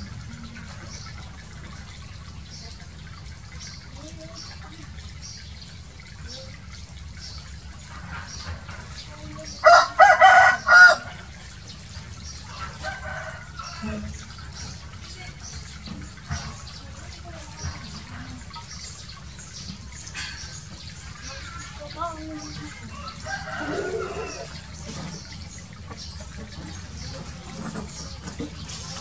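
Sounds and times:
water running and splashing: 0.0 - 29.0
rooster crowing: 9.6 - 11.2, 12.5 - 14.0, 22.9 - 24.6.

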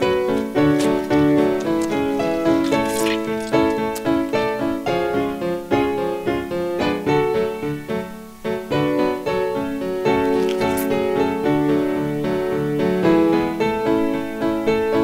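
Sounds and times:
piano chords: 0.0 - 15.0.

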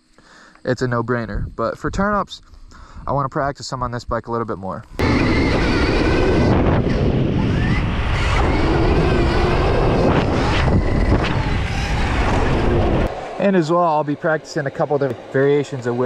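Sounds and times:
wind noise on microphone: 1.2 - 3.4, 4.9 - 13.2
electric motor whine: 4.9 - 13.5.

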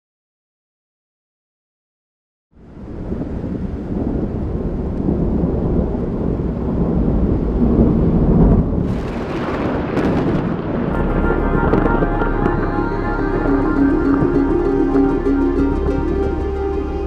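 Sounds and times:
deep rumbling: 2.7 - 17.0
sharp crack: 8.8 - 14.8.

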